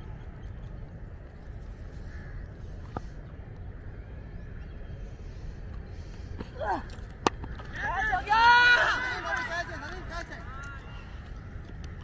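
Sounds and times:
low background rumble: 0:00.0 - 0:12.0
distant crows cawing: 0:02.0 - 0:03.1.

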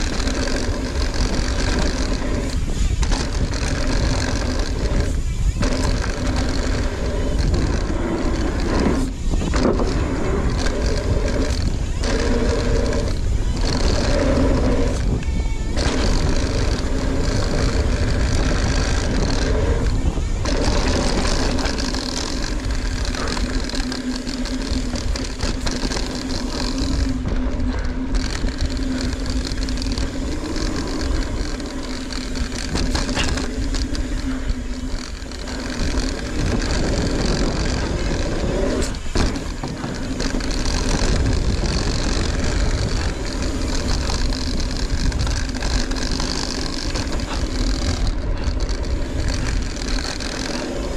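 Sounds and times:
bike hub freewheeling buzz: 0:00.0 - 0:50.9
wind: 0:00.0 - 0:50.9.

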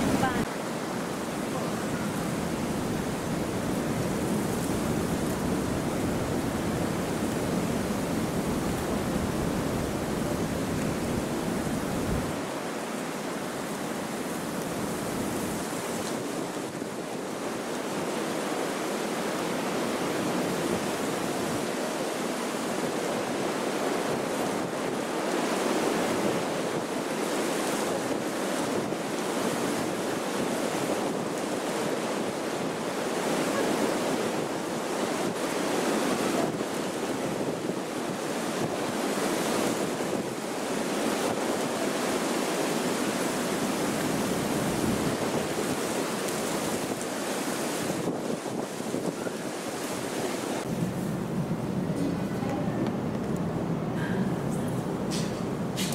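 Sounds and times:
wind buffeting microphone: 0:00.0 - 0:18.6, 0:19.5 - 0:55.9
strong wind gusts: 0:00.0 - 0:55.9.

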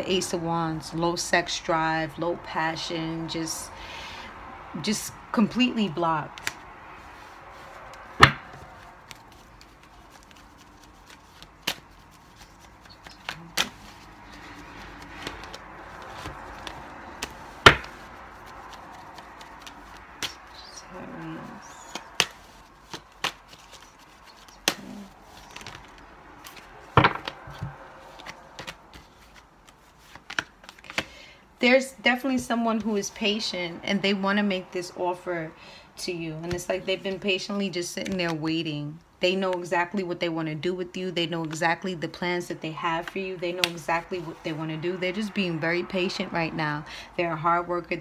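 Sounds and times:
cards rustling: 0:06.3 - 0:31.2
cards tapping and slapping: 0:06.4 - 0:06.6, 0:07.9 - 0:20.7, 0:21.8 - 0:31.1.

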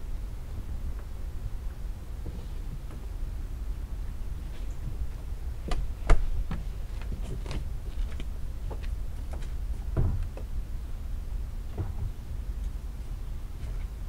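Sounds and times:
low steady rumble: 0:00.0 - 0:14.0
flip-flop footsteps on wooden deck: 0:04.9 - 0:10.5.

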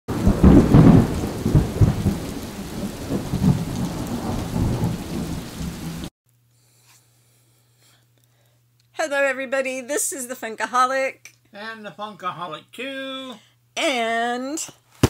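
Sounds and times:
steady rain: 0:00.1 - 0:06.1
thunder rumbling: 0:00.1 - 0:06.1.

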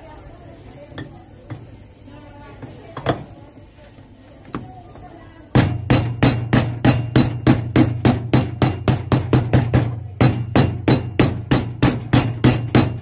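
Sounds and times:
hammer blows with metallic ring: 0:05.6 - 0:13.0.

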